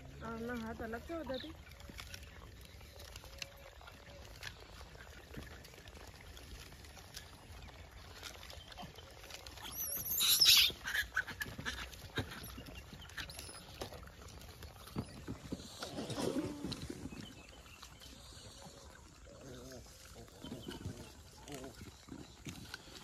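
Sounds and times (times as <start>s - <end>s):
fruit being handled and chewed: 0.0s - 23.0s
monkey shrill call: 9.6s - 11.3s.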